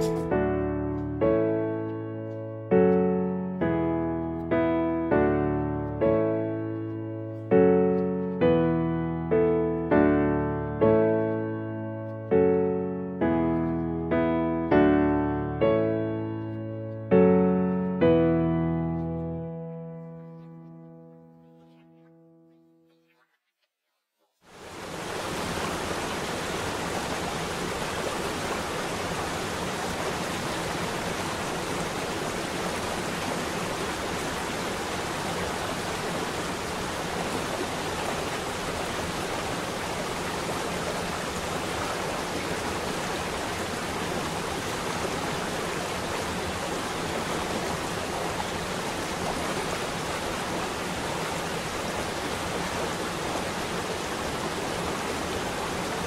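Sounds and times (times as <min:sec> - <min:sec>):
waterfall rushing water: 0:24.5 - 0:56.0.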